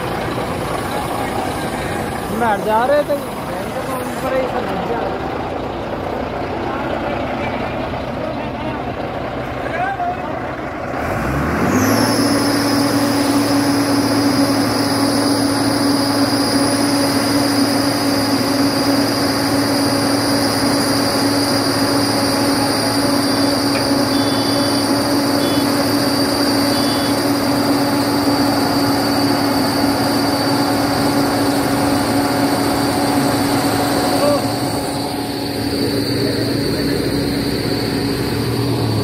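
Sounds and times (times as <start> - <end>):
paving machine engine drone: 0.0 - 39.0
steady high whine: 11.8 - 39.0.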